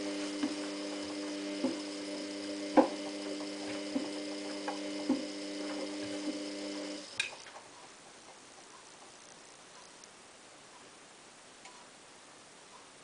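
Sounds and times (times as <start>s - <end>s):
washing machine motor whine: 0.0s - 7.5s.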